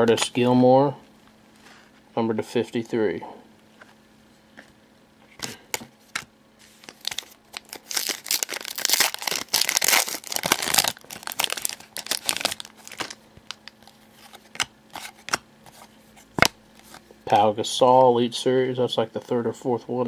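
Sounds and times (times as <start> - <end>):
wrapper crinkling and rustling: 6.7 - 15.2.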